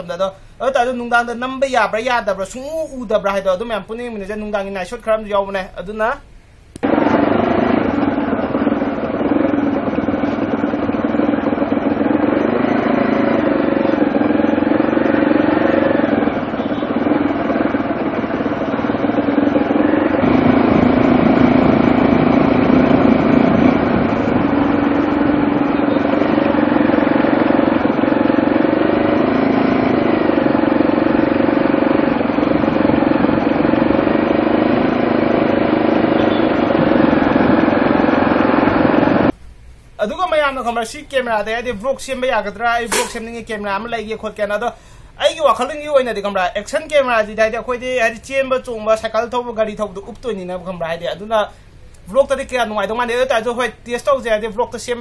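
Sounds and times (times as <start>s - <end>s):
motorcycle engine running: 6.8s - 39.3s.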